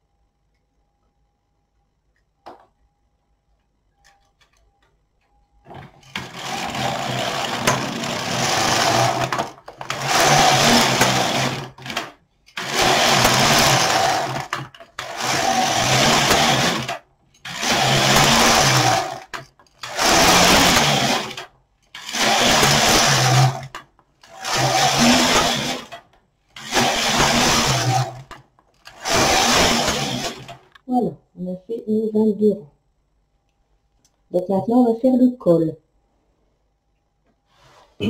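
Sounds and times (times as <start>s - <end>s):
knitting machine carriage sliding: 5.7s - 30.8s.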